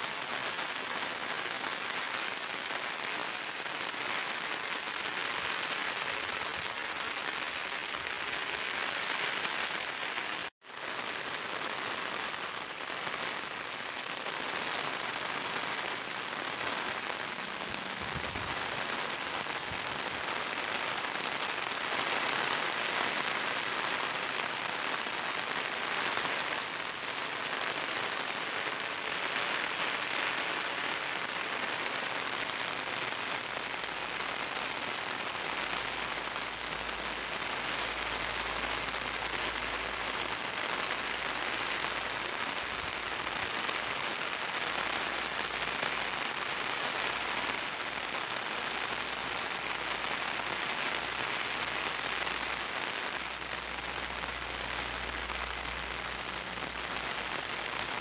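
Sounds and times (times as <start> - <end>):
heavy rain on wet ground: 0.0 - 58.0.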